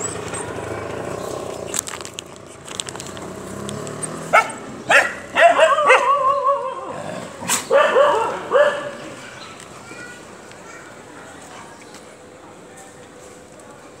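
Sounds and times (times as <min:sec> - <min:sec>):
dogs barking: 0:04.2 - 0:09.4
dog yelps: 0:04.3 - 0:09.0.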